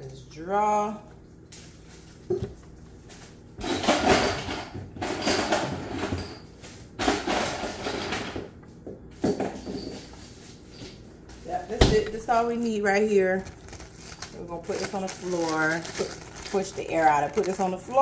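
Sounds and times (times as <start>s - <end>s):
ice cubes clattering into plastic bag: 13.2s - 18.0s.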